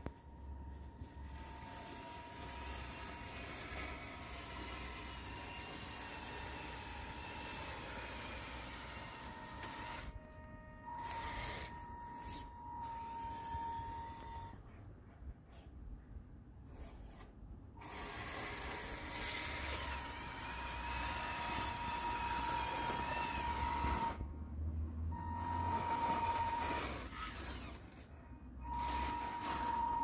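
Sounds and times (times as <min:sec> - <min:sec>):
electric motor whining: 0:17.8 - 0:24.2.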